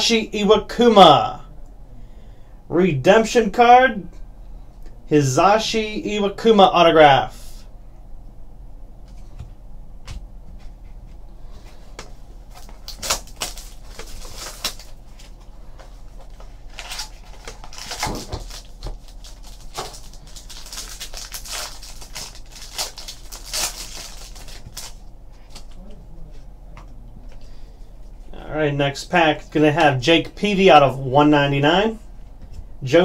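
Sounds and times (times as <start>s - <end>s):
low steady hum: 0.0s - 33.0s
foil wrapper crinkling: 12.5s - 25.8s.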